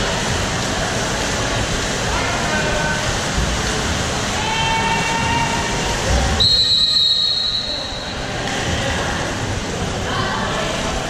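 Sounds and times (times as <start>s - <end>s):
hubbub of indoor pool: 0.0s - 11.0s
referee's whistle blast: 6.4s - 8.1s.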